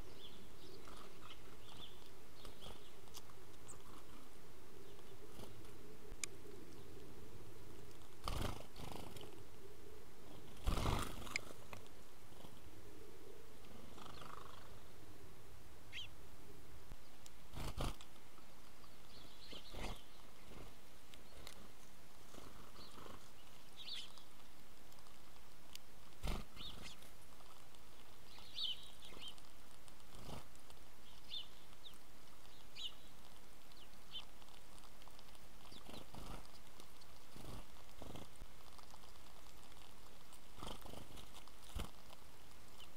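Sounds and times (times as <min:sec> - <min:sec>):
sparrows chirping: 0:00.0 - 0:11.7, 0:12.5 - 0:14.9, 0:15.9 - 0:16.2, 0:18.6 - 0:24.5, 0:26.1 - 0:39.2
steady background hiss: 0:00.0 - 0:42.9.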